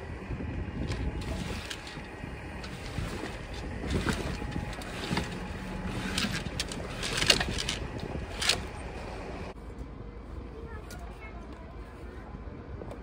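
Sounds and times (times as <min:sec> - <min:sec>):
wind rumble: 0:00.0 - 0:09.6
rigging clattering: 0:00.7 - 0:09.5
sailcloth rustling and flapping: 0:00.8 - 0:08.8.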